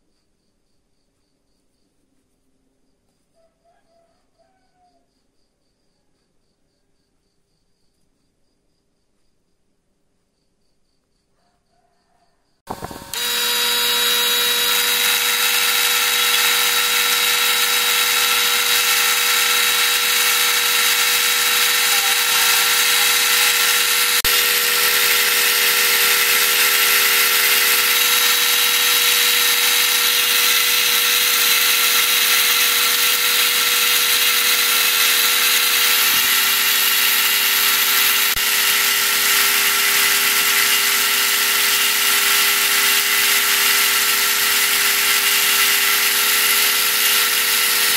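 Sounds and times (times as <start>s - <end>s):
end mill cutting metal: 12.7s - 47.9s
milling machine spindle whine: 12.7s - 47.9s.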